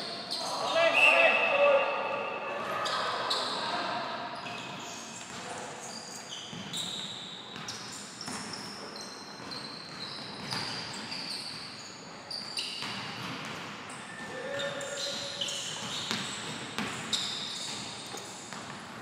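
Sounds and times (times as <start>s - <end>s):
sneakers squeaking on court: 2.2s - 3.8s, 4.4s - 19.0s.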